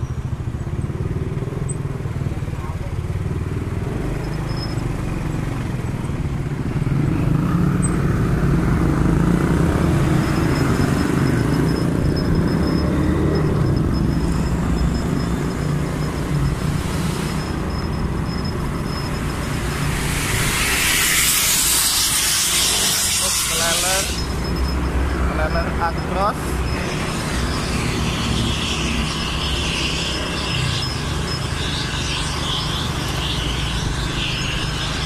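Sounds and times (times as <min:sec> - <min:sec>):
motorcycle engine rumble: 0:00.0 - 0:21.3
road noise: 0:00.0 - 0:35.0.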